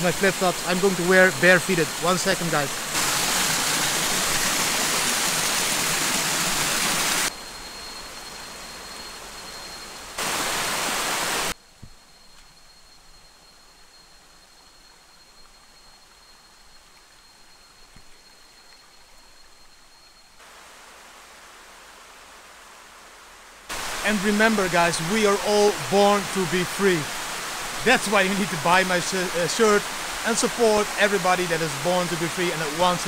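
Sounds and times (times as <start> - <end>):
waterfall rushing: 0.0 - 7.3, 10.2 - 11.6, 23.7 - 33.0
thin steady high tone: 7.2 - 10.8, 24.1 - 27.2, 27.8 - 33.0.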